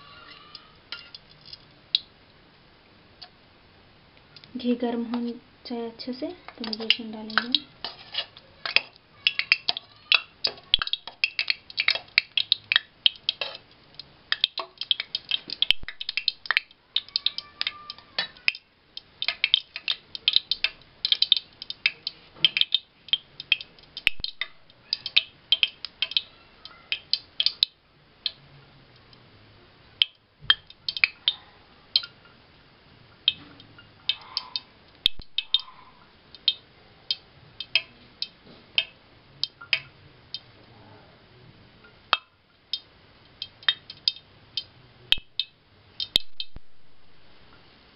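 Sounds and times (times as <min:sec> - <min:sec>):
ghee crackling and popping: 0:00.0 - 0:02.4, 0:03.1 - 0:03.4, 0:06.1 - 0:29.3, 0:29.9 - 0:40.6, 0:41.8 - 0:47.7.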